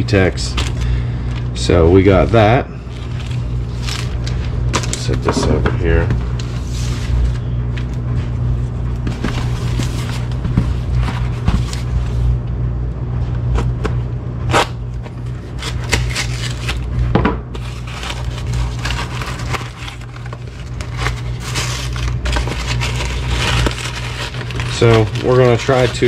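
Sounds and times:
steady low hum: 0:00.0 - 0:26.0
cardboard and paper crinkling: 0:02.0 - 0:08.0, 0:09.0 - 0:12.3, 0:15.0 - 0:16.9, 0:17.6 - 0:26.0.

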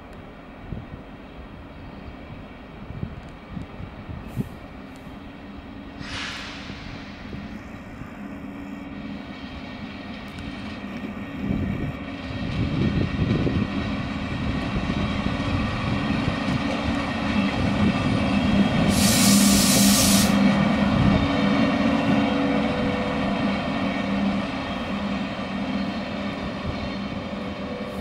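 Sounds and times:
electric locomotive passing: 0:00.0 - 0:28.0
hiss of air: 0:05.9 - 0:08.3, 0:18.8 - 0:20.5.

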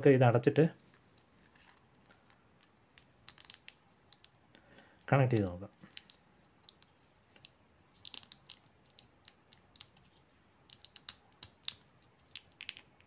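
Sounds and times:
small plastic clicks and taps: 0:02.6 - 0:13.0.

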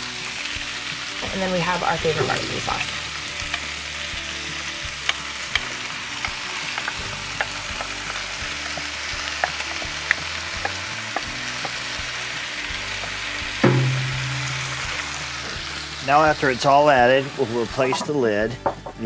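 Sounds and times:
meat sizzling in a pot: 0:00.0 - 0:18.7
knock: 0:13.6 - 0:14.4.

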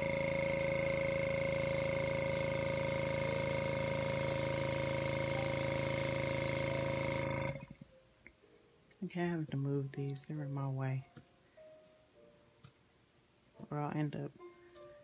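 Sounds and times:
air gun hissing: 0:00.0 - 0:07.7.

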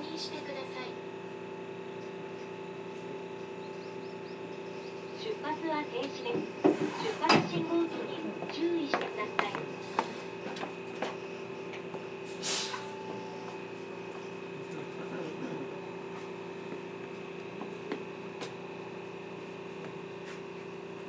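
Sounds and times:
steady electrical hum: 0:00.0 - 0:21.0
short hiss: 0:12.4 - 0:12.8.

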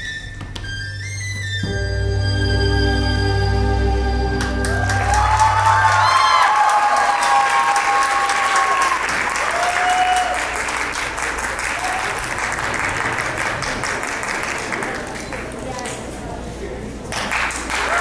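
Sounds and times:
audience applauding: 0:04.4 - 0:16.1, 0:17.1 - 0:18.0.

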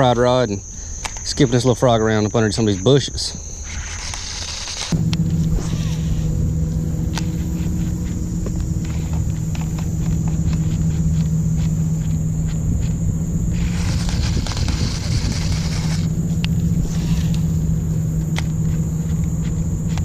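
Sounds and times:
steady low hum: 0:00.0 - 0:20.0
fishing reel whirring: 0:03.6 - 0:06.4, 0:13.5 - 0:17.8.

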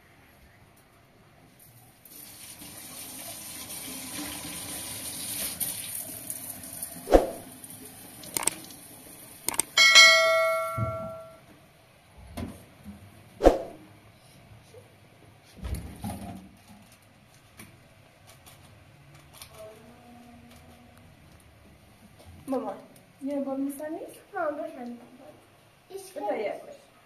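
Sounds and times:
tap water running into sink: 0:02.1 - 0:06.8
sharp knocks: 0:09.5 - 0:11.4
metal object clanging: 0:09.7 - 0:11.4.

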